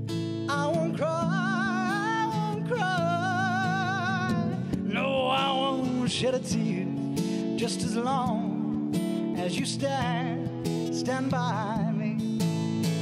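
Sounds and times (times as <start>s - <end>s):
strummed acoustic guitar: 0.0s - 13.0s
man singing with vibrato: 0.5s - 12.4s.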